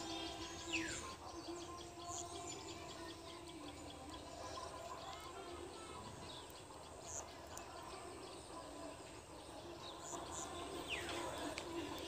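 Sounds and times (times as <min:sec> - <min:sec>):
bird chirps: 0:00.0 - 0:05.1.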